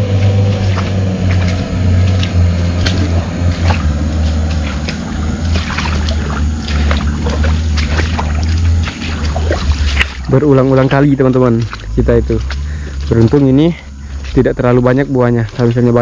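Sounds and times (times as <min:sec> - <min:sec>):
car engine running: 0:00.0 - 0:16.0.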